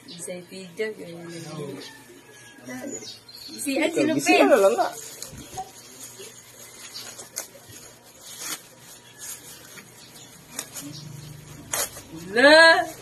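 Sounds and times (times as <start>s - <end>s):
plastic bag crinkling: 4.4s - 13.0s.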